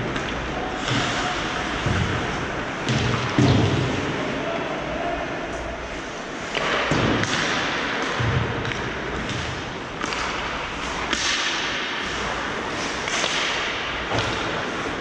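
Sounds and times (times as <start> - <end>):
hockey sticks and puck clacking: 0.0 - 4.2, 5.5 - 15.0.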